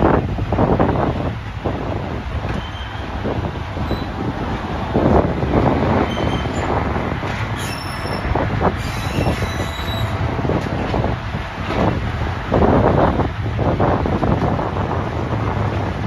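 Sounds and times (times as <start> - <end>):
train wheels rumbling on rails: 0.0 - 16.0
faint wheel squeals: 2.5 - 3.1, 3.8 - 4.2, 6.0 - 6.8, 7.5 - 10.2.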